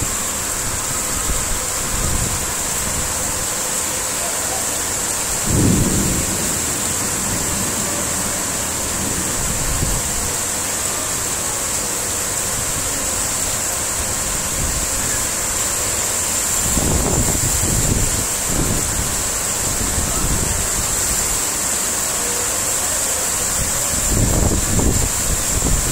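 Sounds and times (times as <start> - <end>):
wind gusts on microphone: 0.0 - 3.6, 5.0 - 10.4, 16.5 - 21.4, 23.6 - 25.9
heavy rain pouring: 0.0 - 25.9.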